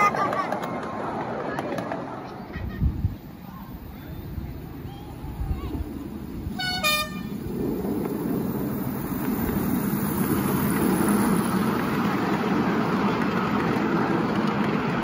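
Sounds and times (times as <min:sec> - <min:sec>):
train wheels rumbling on track: 0:00.0 - 0:15.0
two-note train horn toot: 0:06.6 - 0:07.3.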